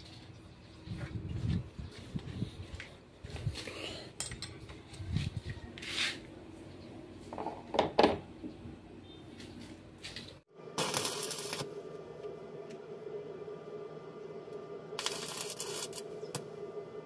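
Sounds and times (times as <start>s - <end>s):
metal tools clinking on concrete: 4.1s - 4.8s.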